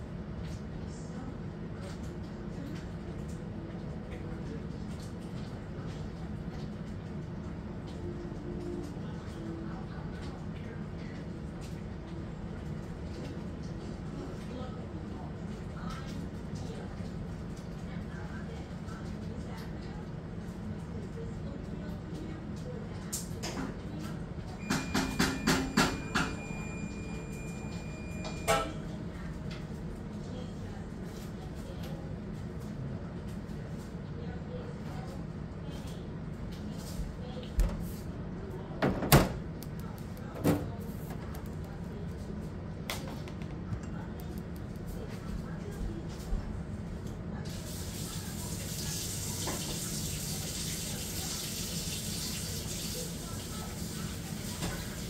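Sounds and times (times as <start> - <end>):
low steady hum: 0.0 - 23.1
kitchen tap running: 47.5 - 55.0.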